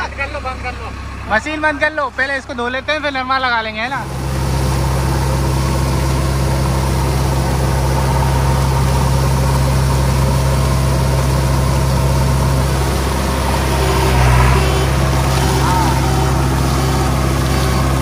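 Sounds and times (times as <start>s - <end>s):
diesel engine running: 0.0s - 18.0s
wheel splashing water: 4.0s - 18.0s.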